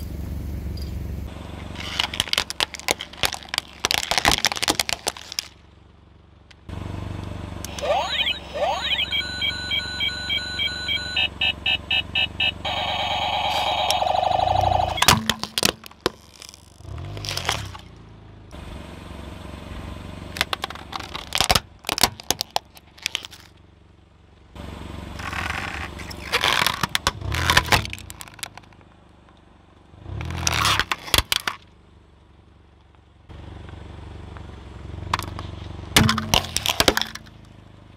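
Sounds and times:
car idling hum: 0:00.0 - 0:37.9
tyre crunching objects on asphalt: 0:01.6 - 0:05.9, 0:14.3 - 0:18.1, 0:35.2 - 0:37.5
pulsing electronic beeping: 0:07.7 - 0:15.1
electronic tones: 0:07.7 - 0:15.2.

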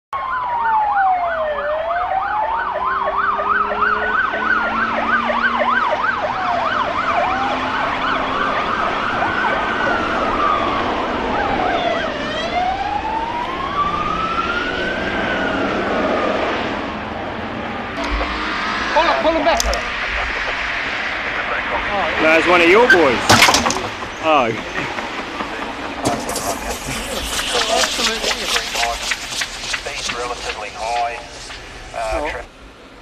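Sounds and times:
police siren yelping: 0:00.2 - 0:16.4, 0:17.8 - 0:29.1
police siren wailing: 0:00.2 - 0:29.2
road noise: 0:00.2 - 0:33.0
car engine: 0:02.2 - 0:33.0.

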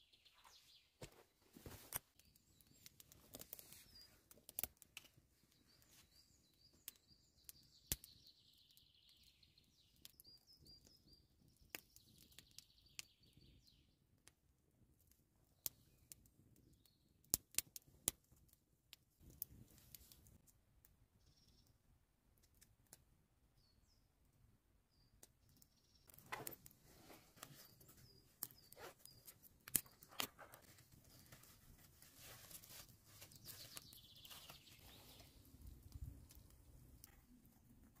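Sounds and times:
wood fire crackling: 0:00.4 - 0:13.5, 0:14.2 - 0:21.0, 0:25.2 - 0:38.0
fire popping and snapping: 0:01.0 - 0:21.0, 0:24.9 - 0:38.0
birds chirping: 0:32.7 - 0:36.7.

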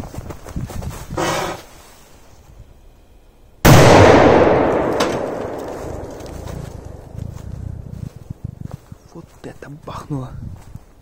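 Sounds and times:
firecracker bang with echo: 0:03.7 - 0:06.6.

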